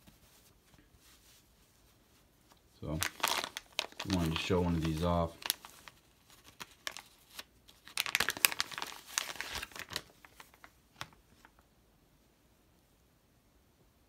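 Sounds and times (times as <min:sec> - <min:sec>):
plastic bag crinkling: 0:02.8 - 0:11.6.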